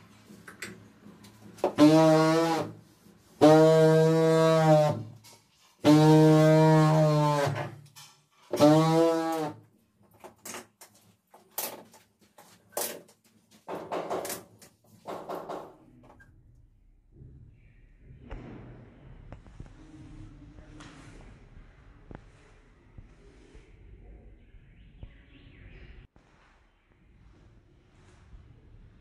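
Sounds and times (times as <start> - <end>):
tile vibrator buzzing: 1.6 - 2.8, 3.4 - 5.1, 8.5 - 9.6.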